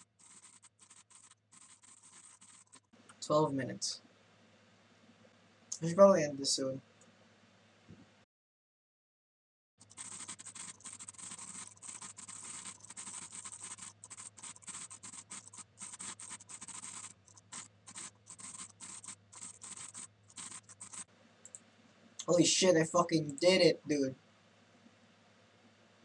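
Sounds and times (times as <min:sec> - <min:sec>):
computer keyboard typing: 0:00.0 - 0:02.9, 0:09.8 - 0:21.6.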